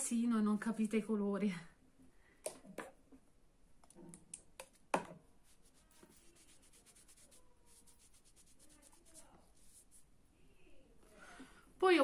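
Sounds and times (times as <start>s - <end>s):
tissue rubbing on skin: 5.4s - 10.1s.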